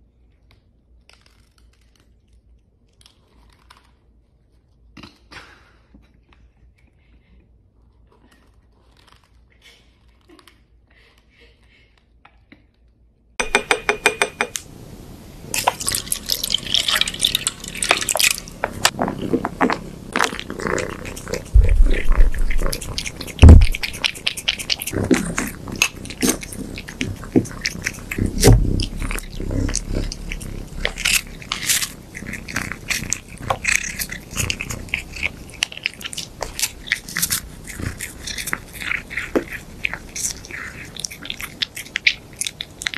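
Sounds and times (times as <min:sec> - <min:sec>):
cat crunching food: 0:13.4 - 0:42.9.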